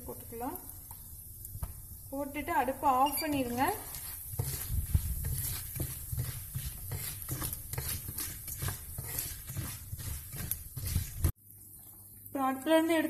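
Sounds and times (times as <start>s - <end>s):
seeds sizzling in hot oil: 0.0s - 13.0s
spatula scraping a pan: 2.9s - 11.4s.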